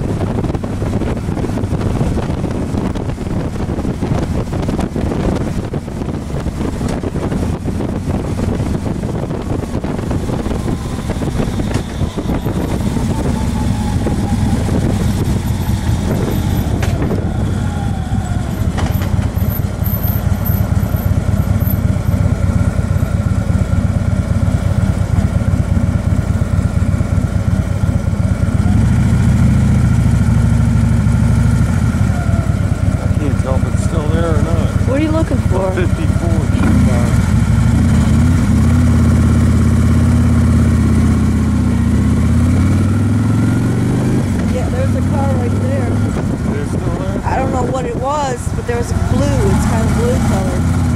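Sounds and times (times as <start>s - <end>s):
wind on microphone: 0.0s - 19.7s, 31.8s - 50.9s
vehicle engine driving: 0.0s - 50.9s.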